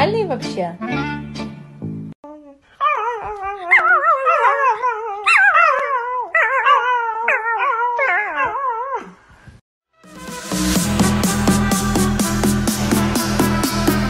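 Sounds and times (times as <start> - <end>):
puppy howling: 2.8 - 9.1
electronic music with steady beat: 10.0 - 14.0.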